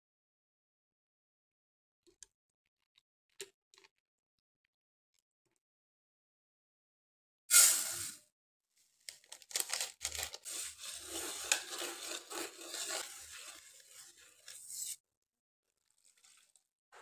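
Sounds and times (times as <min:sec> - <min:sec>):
whisk scraping sugar in saucepan: 0:09.9 - 0:15.0, 0:15.9 - 0:16.6.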